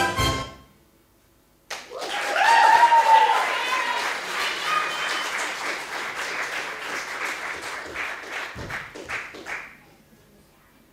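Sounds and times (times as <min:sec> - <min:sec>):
audience applauding: 0:01.7 - 0:09.8.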